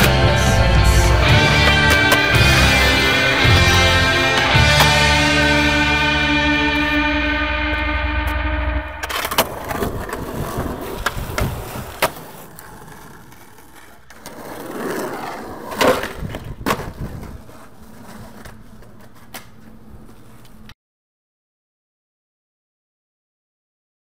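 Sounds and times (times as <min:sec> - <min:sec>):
skateboard wheels rolling on pavement: 0:00.0 - 0:07.0, 0:09.0 - 0:20.7
skateboard clacking on ground: 0:09.0 - 0:20.7.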